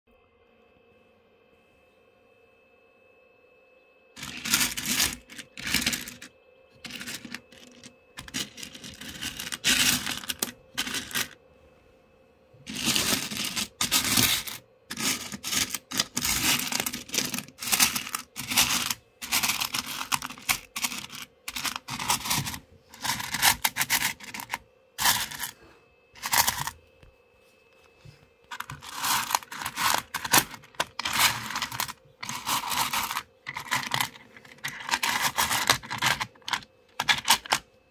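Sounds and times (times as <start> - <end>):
stones clattering and scraping: 4.2 - 11.3, 28.5 - 37.6.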